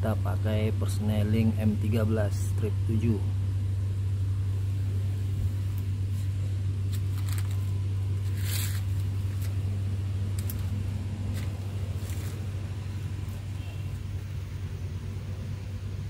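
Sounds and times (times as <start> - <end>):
diesel engine idling: 0.0 - 16.0
short rustle: 6.1 - 9.6, 10.3 - 12.6.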